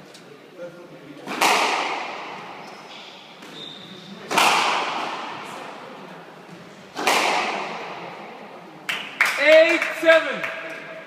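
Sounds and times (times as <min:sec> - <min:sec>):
squash ball struck hard: 0:01.3 - 0:02.5, 0:04.3 - 0:05.3, 0:07.0 - 0:07.8.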